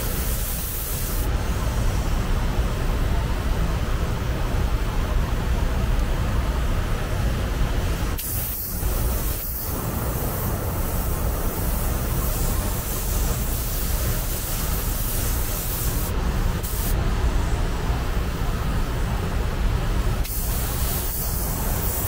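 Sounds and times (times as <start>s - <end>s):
compressed air hissing: 0.0s - 2.0s, 8.1s - 17.0s, 20.2s - 22.0s.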